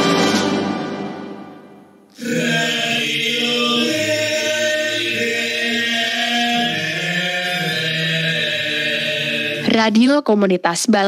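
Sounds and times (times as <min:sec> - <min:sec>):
voices chanting long notes: 0:02.1 - 0:09.7.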